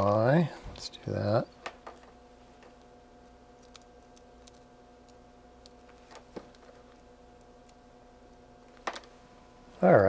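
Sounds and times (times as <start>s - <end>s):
faint electrical hum: 0.0s - 10.0s.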